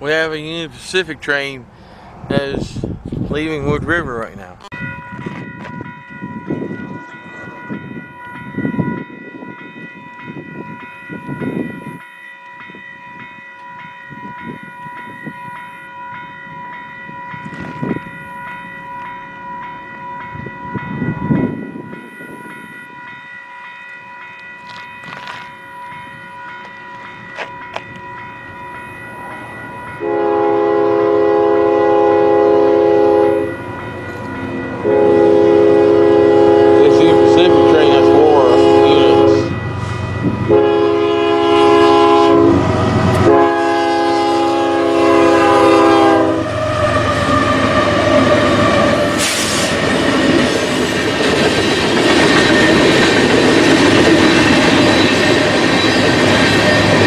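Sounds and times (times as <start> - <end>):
wind gusts on microphone: 2.0 - 12.0, 12.7 - 15.6, 16.2 - 18.4, 20.1 - 23.1, 33.2 - 44.0
locomotive air horn: 30.0 - 33.6, 34.8 - 49.8.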